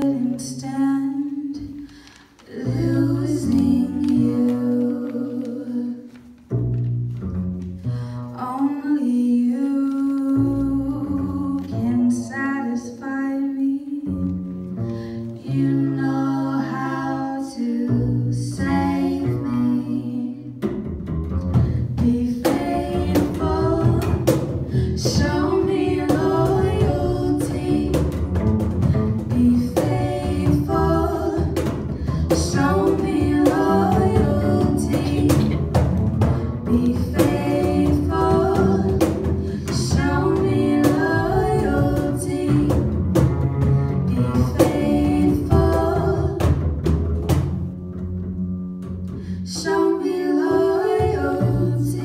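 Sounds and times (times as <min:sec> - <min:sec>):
women singing: 0:00.0 - 0:06.4, 0:08.3 - 0:14.4, 0:15.2 - 0:20.7, 0:21.6 - 0:46.9, 0:49.2 - 0:52.0
upright double bass: 0:00.0 - 0:52.0
cajon beat: 0:20.6 - 0:49.1.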